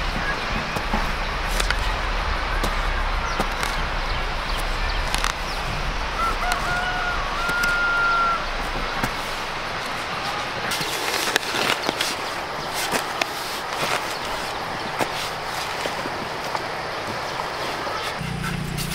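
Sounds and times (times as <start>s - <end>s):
hand hoe chopping soil: 0.2s - 16.1s
rooster crowing: 5.2s - 10.3s.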